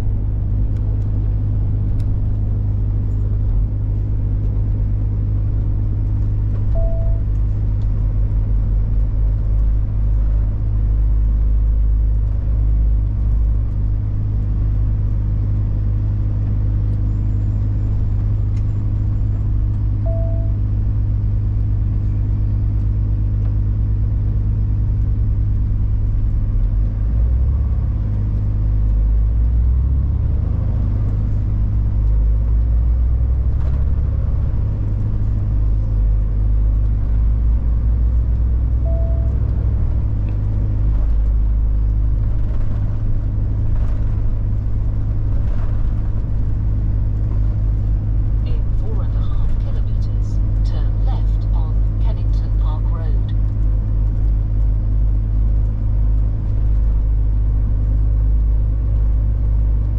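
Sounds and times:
truck diesel engine droning: 0:00.0 - 0:59.9
short beep: 0:06.7 - 0:07.3, 0:20.0 - 0:20.6, 0:38.9 - 0:39.4.

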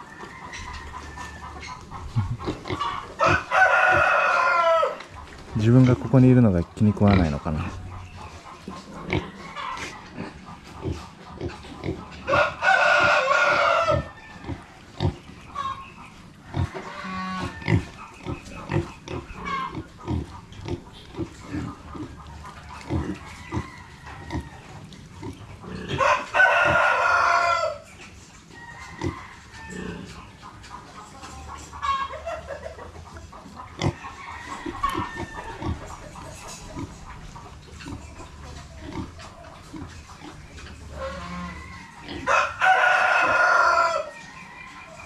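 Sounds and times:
pigs grunting: 0:00.6 - 0:27.8, 0:28.9 - 0:30.5, 0:31.5 - 0:44.0
rooster crowing: 0:02.8 - 0:05.0, 0:12.3 - 0:14.6, 0:16.5 - 0:17.9, 0:23.2 - 0:24.8, 0:25.9 - 0:27.8, 0:28.6 - 0:30.0, 0:34.0 - 0:35.8, 0:41.0 - 0:45.0.

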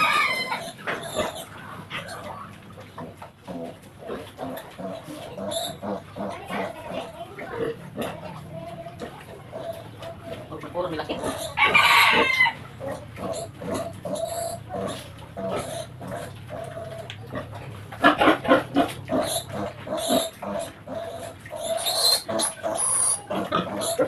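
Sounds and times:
piglet grunting and squealing: 0:00.0 - 0:24.0.

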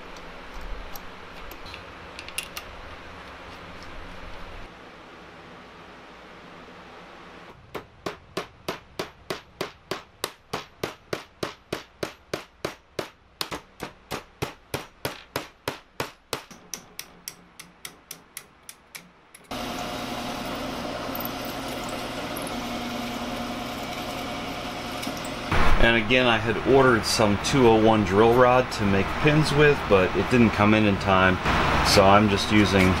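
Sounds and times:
drill press drilling steel: 0:19.5 - 0:25.6.

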